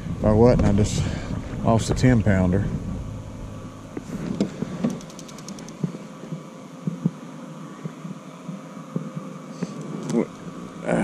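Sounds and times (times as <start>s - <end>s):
rapid clicks: 4.4s - 6.0s.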